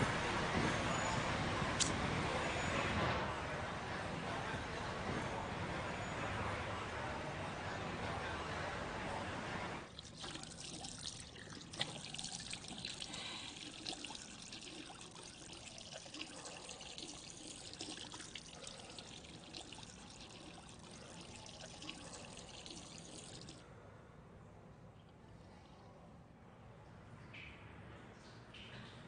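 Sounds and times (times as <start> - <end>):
water splashing on face: 9.9 - 15.1
water running from tap into sink: 9.9 - 23.6.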